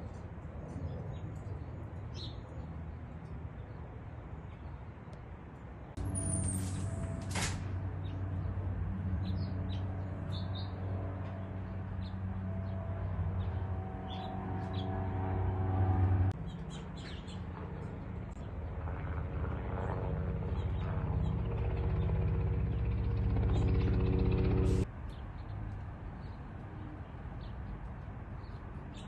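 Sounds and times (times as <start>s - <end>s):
low motor hum: 6.0s - 24.9s.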